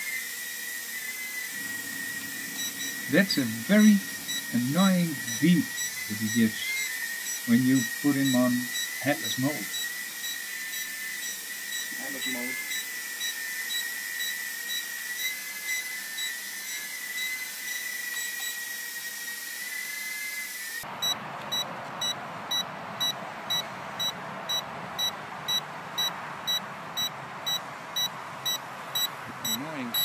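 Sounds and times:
quadcopter motors whining: 0:00.0 - 0:30.0
steady hiss: 0:01.6 - 0:09.7
short high beeps: 0:21.0 - 0:30.0.

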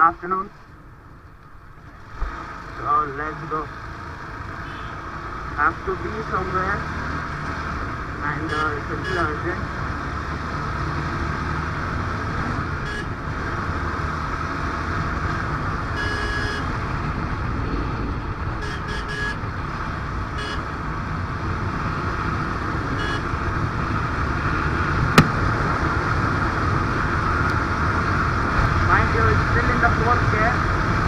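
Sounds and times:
vehicle horn toot: 0:04.6 - 0:05.0, 0:08.4 - 0:09.4, 0:12.8 - 0:13.1, 0:15.9 - 0:16.7, 0:18.6 - 0:19.4, 0:20.4 - 0:20.6, 0:23.0 - 0:23.3.

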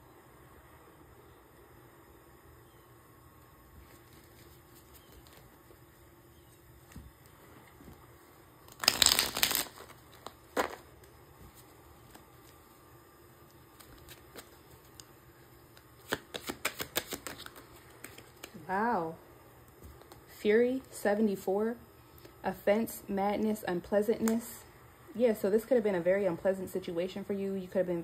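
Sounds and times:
cards being shuffled: 0:03.8 - 0:05.8, 0:08.6 - 0:12.8, 0:13.4 - 0:18.6, 0:19.8 - 0:20.3.

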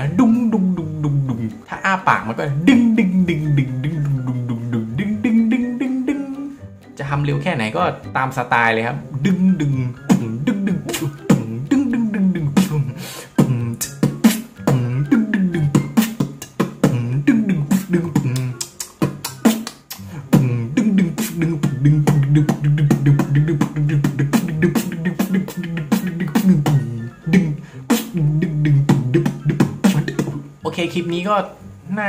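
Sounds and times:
beatboxing tom-tom sounds: 0:02.3 - 0:06.6, 0:09.2 - 0:30.6
percussive mouth clicks: 0:09.7 - 0:30.4.

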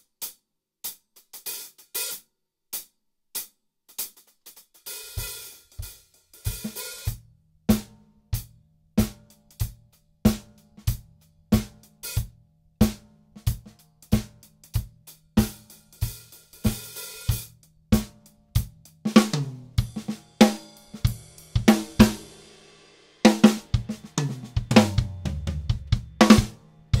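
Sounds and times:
acoustic drum kit groove: 0:00.0 - 0:27.0.

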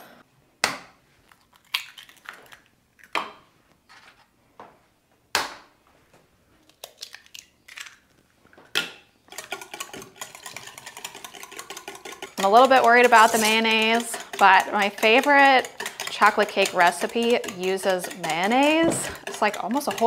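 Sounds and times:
eggshells crunching apart: 0:01.2 - 0:03.2.

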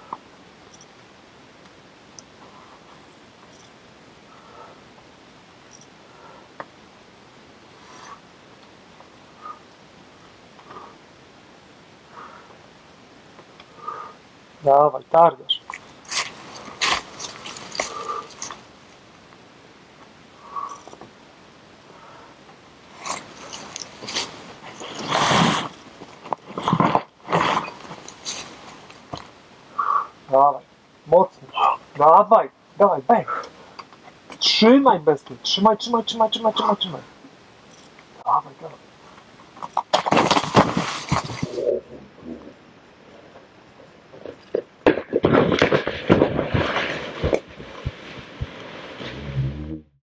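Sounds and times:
climber landing with thuds and scuffling: 0:39.6 - 0:41.6, 0:44.8 - 0:49.7.

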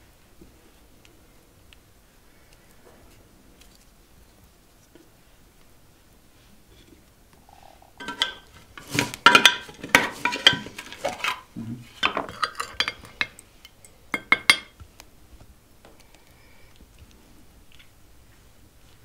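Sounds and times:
crockery and cutlery clinking: 0:08.0 - 0:14.8.

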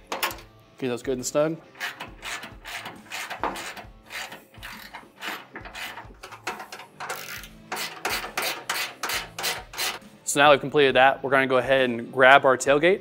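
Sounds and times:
hand ratchet clicking: 0:01.7 - 0:10.0.

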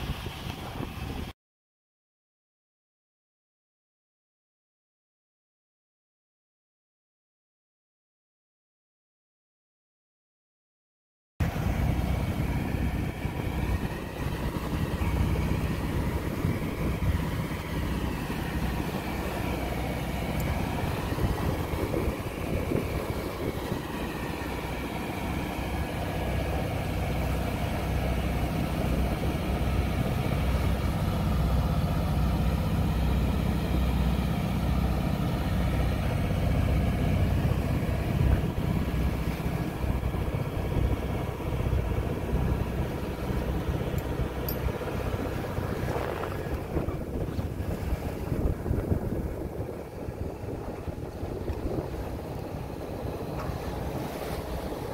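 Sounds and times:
water rushing along hull: 0:00.0 - 0:01.4, 0:11.4 - 0:54.9
boat engine running: 0:11.4 - 0:54.9.

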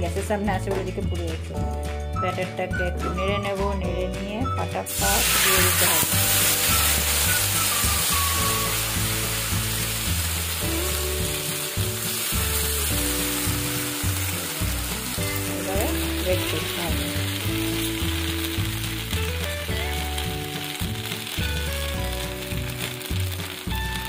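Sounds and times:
background music: 0:00.0 - 0:24.0
batter sizzling on a pan: 0:04.9 - 0:24.0.

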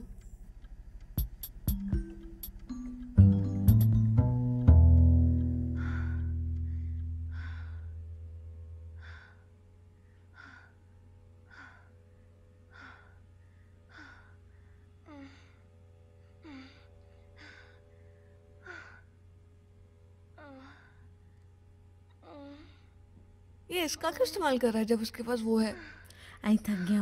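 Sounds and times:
low music note: 0:01.8 - 0:09.0
woman gasping and moaning: 0:05.7 - 0:08.1, 0:12.7 - 0:17.9, 0:18.6 - 0:19.2, 0:20.3 - 0:21.1, 0:22.2 - 0:23.0, 0:25.6 - 0:26.9.

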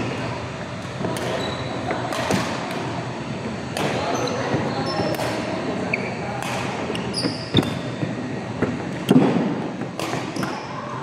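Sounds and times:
sneakers squeaking on court: 0:01.2 - 0:02.0, 0:04.0 - 0:06.3, 0:06.9 - 0:08.2
racket striking shuttlecock: 0:02.1 - 0:02.9, 0:05.1 - 0:05.4, 0:06.4 - 0:06.8, 0:09.0 - 0:10.6.

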